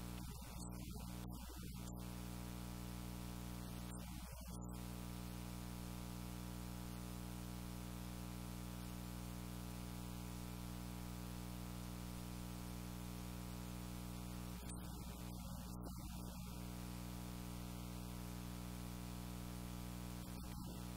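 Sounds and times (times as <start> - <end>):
constant hiss: 0.0 - 5.5, 17.7 - 20.9
electrical mains hum: 0.0 - 20.9.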